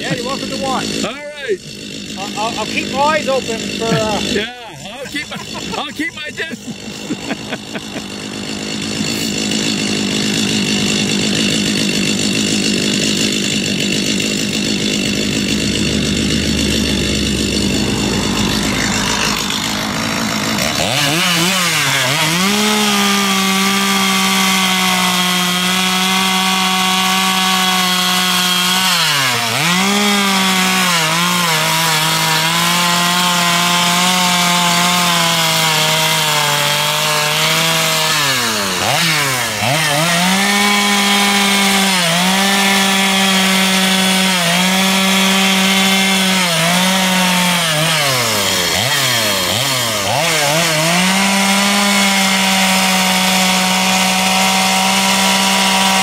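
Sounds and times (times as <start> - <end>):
chainsaw cutting wood: 0.0 - 56.0.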